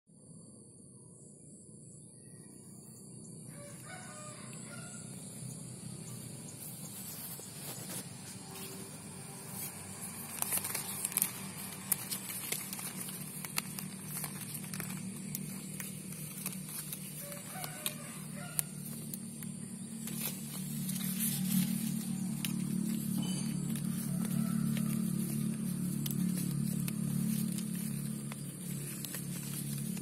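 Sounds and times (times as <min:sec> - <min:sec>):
low hum: 0:00.1 - 0:30.0
leaves rustling: 0:03.6 - 0:30.0
flower buds snapping: 0:10.0 - 0:30.0.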